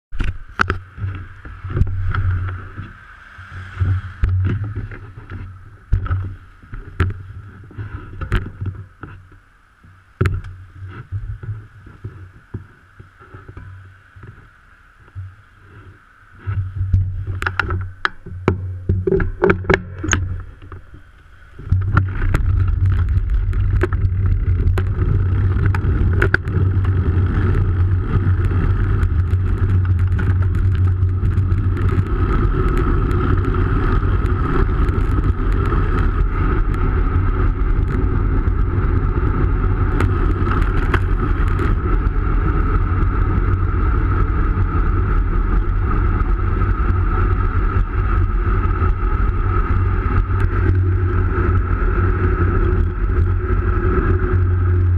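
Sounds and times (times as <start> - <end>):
wind buffeting microphone: 0.1 - 54.9
sharp clicks and knocks: 16.5 - 27.0.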